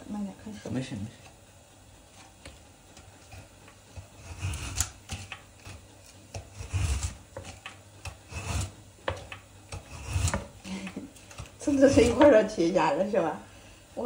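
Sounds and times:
slicer blade scraping frozen meat: 3.3s - 10.5s.

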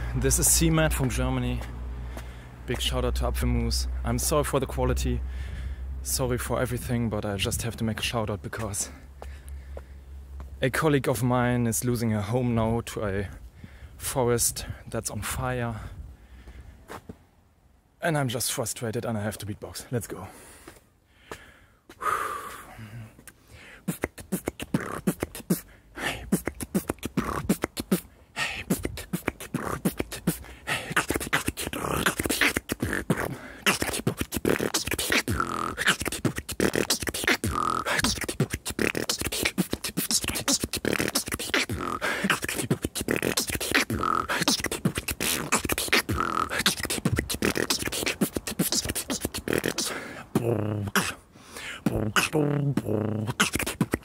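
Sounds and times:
man beatboxing: 0.0s - 1.8s, 2.7s - 5.2s, 6.0s - 9.0s, 14.3s - 15.9s, 22.0s - 54.0s.

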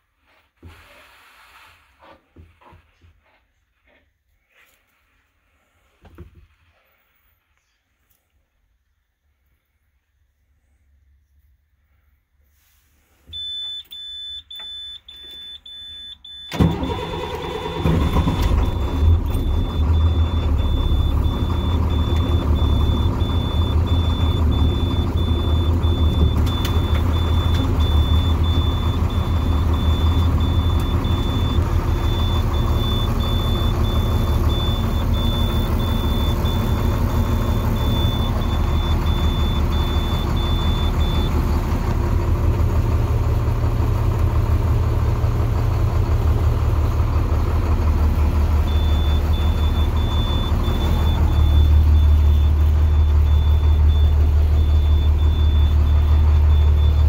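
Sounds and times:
diesel engine cranking: 16.3s - 57.0s
diesel engine idling: 16.4s - 57.0s
dash warning chimes: 18.2s - 41.4s, 48.7s - 57.0s.

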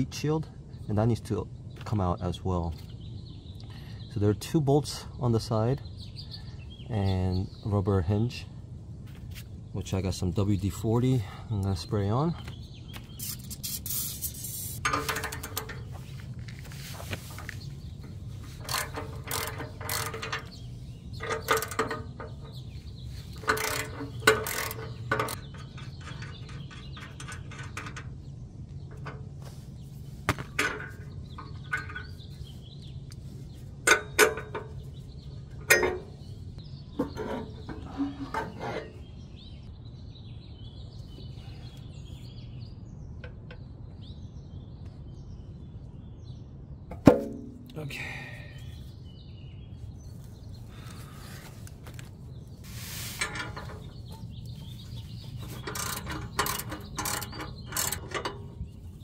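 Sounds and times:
metal clanks: 14.7s - 16.1s, 17.2s - 29.5s, 30.3s - 32.5s, 33.8s - 39.1s, 46.9s - 48.1s, 52.7s - 59.0s
socket ratchet clicking: 55.6s - 58.3s.

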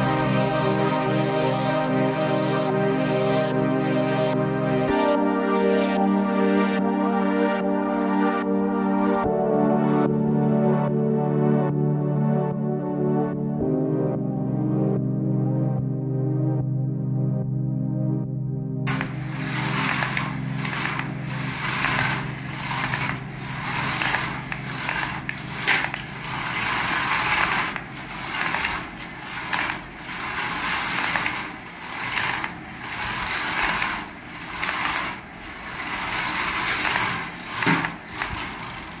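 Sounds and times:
toy car motor whirring: 18.9s - 39.0s.

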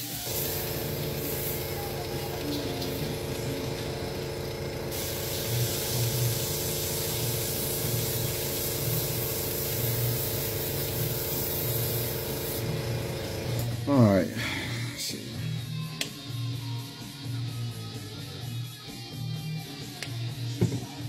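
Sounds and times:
airbrush spraying hiss: 0.0s - 13.6s
steady hum: 0.2s - 15.4s.

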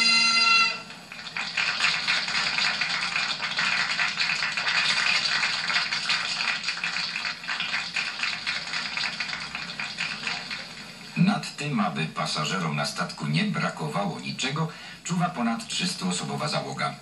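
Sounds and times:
crowd applauding: 0.0s - 11.2s.

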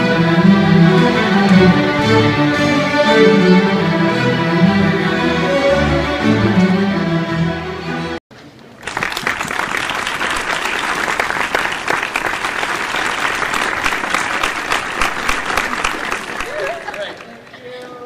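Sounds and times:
string orchestra playing: 0.0s - 8.2s
audience clapping: 8.8s - 17.6s.

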